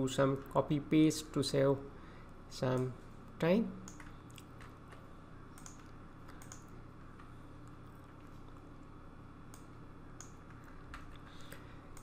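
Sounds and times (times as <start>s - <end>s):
low steady hum: 0.0s - 12.0s
keyboard and mouse clicks: 3.9s - 5.0s, 5.6s - 7.3s.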